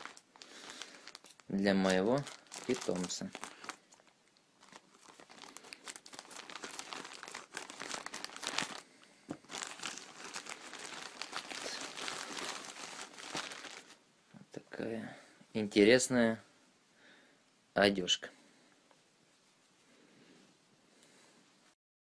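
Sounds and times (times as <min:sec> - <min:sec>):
plastic bag crinkling: 0:00.0 - 0:14.0.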